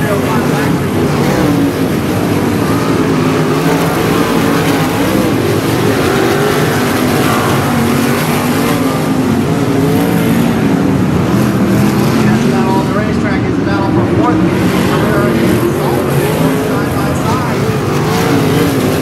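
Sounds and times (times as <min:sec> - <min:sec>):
race car engines: 0:00.0 - 0:19.0.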